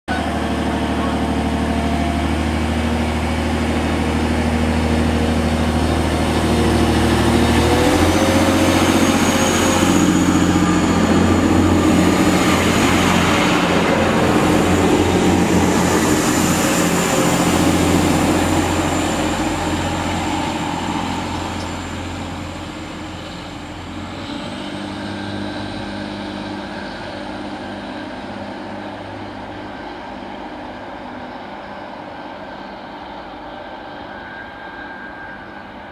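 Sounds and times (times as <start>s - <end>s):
high whine: 0.1s - 24.3s, 32.2s - 35.9s
diesel train engine revving: 0.1s - 35.9s.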